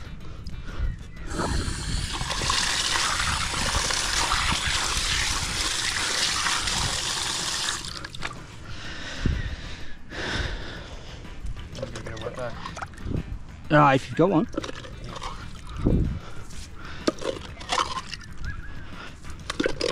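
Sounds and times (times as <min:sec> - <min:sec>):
water gushing and splashing: 0:01.3 - 0:08.4, 0:17.1 - 0:18.2.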